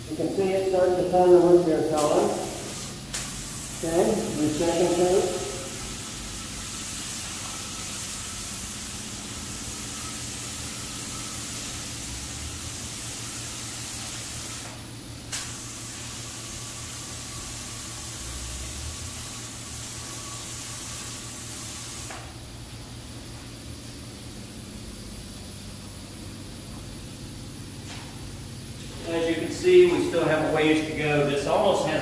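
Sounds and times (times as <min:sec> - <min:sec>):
spray gun hissing: 0:00.6 - 0:32.0.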